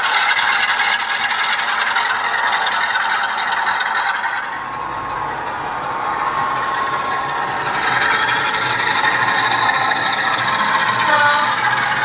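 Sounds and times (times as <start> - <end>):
diesel engine sound from small speaker: 0.0 - 12.0
wagon wheels rattling over track: 0.0 - 12.0.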